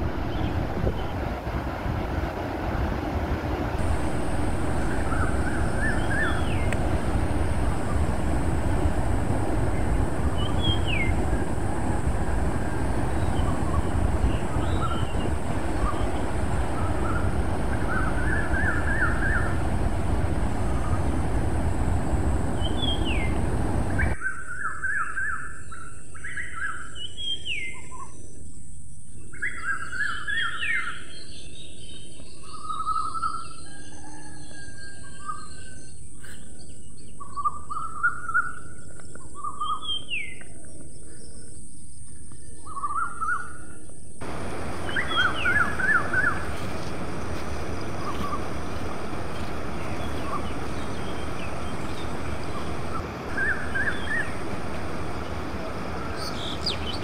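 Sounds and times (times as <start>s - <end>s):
low background rumble: 0.0s - 24.2s, 44.2s - 57.0s
small birds calling: 3.8s - 24.2s, 44.2s - 57.0s.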